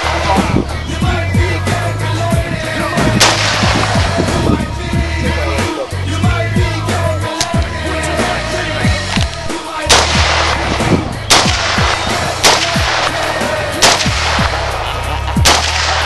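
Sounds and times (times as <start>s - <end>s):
rifle gunshots: 0.0s - 0.6s, 3.0s - 4.3s, 9.0s - 14.8s, 15.4s - 16.0s
hip-hop music with bass beat: 0.0s - 16.0s.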